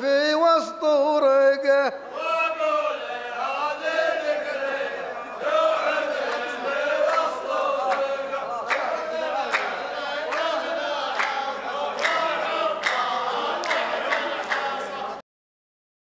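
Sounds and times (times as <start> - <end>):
men chanting in unison: 0.0 - 15.2
rhythmic hand claps: 5.5 - 15.2.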